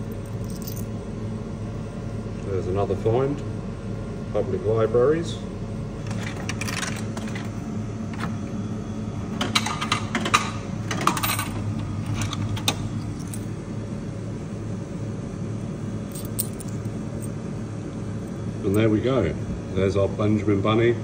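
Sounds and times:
steady machine hum: 0.0s - 21.0s
coins clinking into tray: 11.1s - 11.6s, 16.1s - 16.8s.

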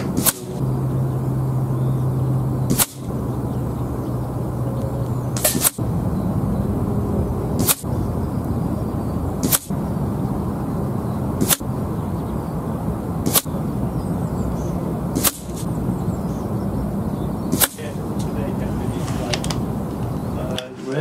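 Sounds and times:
air rifle shots: 0.0s - 0.6s, 2.6s - 3.2s, 5.4s - 5.8s, 7.6s - 8.0s, 9.4s - 9.9s, 11.4s - 11.8s, 13.2s - 13.7s, 15.1s - 15.8s, 17.5s - 18.3s.

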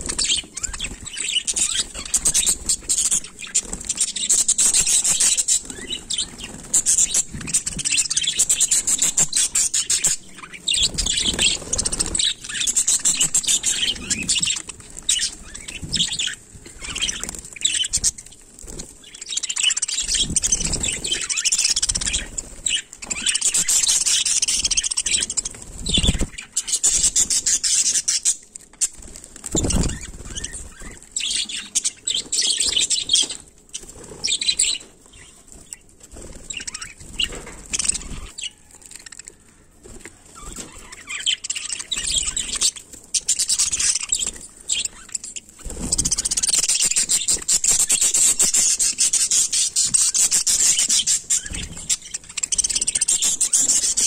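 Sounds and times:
budgerigars chattering and chirping: 0.0s - 18.4s, 19.0s - 35.7s, 36.5s - 39.4s, 40.4s - 54.0s
wings flapping: 0.0s - 19.4s, 24.7s - 26.5s, 28.9s - 31.6s, 43.2s - 54.0s.

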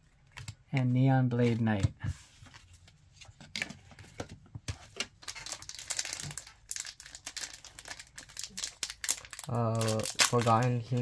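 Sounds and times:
wrapper crinkling and tearing: 5.2s - 11.0s.

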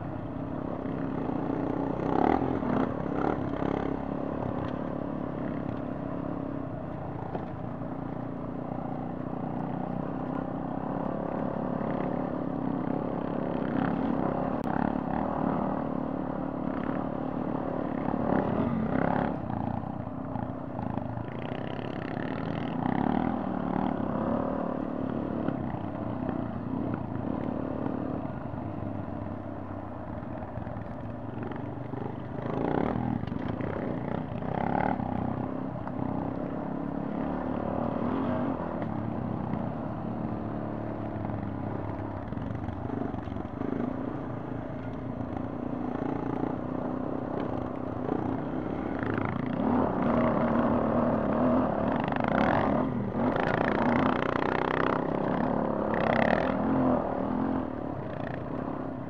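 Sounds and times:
motorcycle engine revving: 0.8s - 5.8s, 30.2s - 59.0s.

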